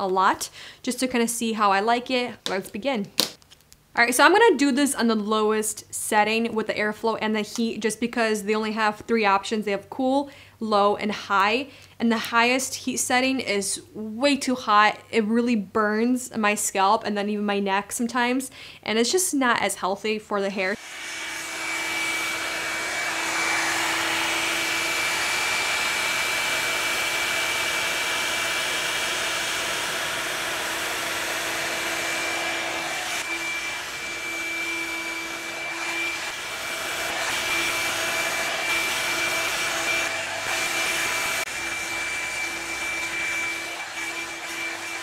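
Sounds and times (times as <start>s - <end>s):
hot-air brush blowing air: 20.8s - 45.0s.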